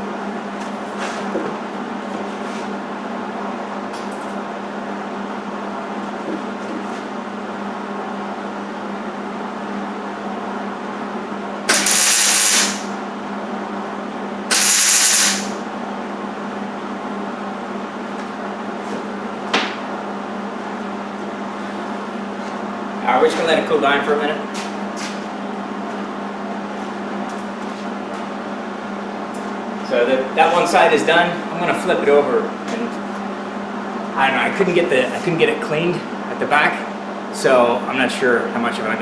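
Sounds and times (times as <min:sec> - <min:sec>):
steady hum: 0:00.0 - 0:39.0
welding arc crackling and hissing: 0:11.7 - 0:13.0, 0:14.5 - 0:15.6.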